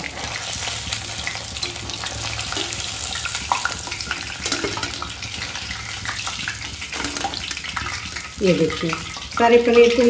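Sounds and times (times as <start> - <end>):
food sizzling in hot oil: 0.0 - 10.0
metal skimmer scraping pan: 4.1 - 5.7, 6.9 - 7.9.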